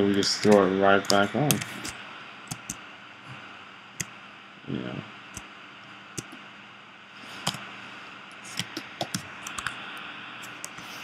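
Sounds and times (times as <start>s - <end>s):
steady low hiss: 0.0s - 11.0s
keyboard and mouse clicks: 0.1s - 2.8s, 7.4s - 7.6s, 8.4s - 9.8s.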